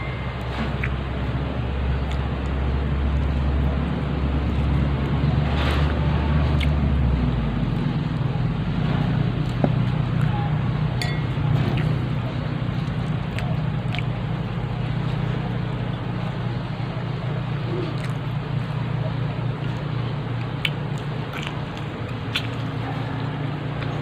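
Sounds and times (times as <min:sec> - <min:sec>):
faint eating sounds: 0:00.0 - 0:24.0
low mechanical hum: 0:00.0 - 0:24.0
spoon in glass bowl: 0:11.0 - 0:11.4.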